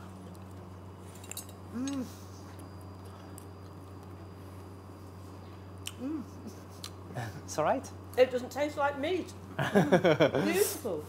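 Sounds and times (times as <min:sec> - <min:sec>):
kitchen equipment humming: 0:00.0 - 0:11.0
person humming mmm while eating: 0:01.7 - 0:02.5, 0:05.8 - 0:06.9.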